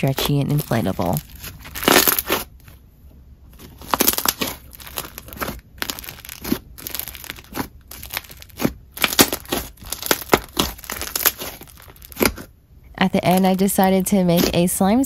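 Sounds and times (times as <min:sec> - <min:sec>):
slime crunches and bubble pops: 0:00.0 - 0:02.5, 0:03.6 - 0:14.7
slime squeezed by hand: 0:03.6 - 0:12.5.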